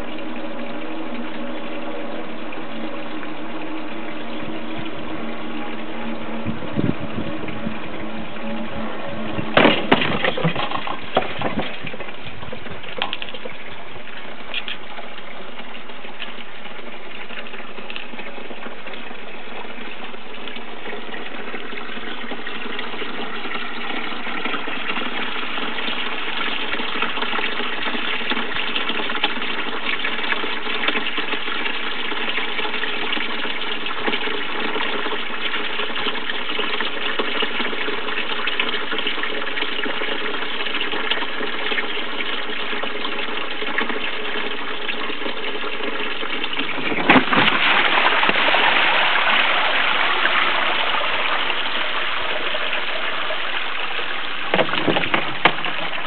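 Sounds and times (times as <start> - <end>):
water pouring into plastic tub: 0.0 - 56.0
knocks: 54.5 - 55.7.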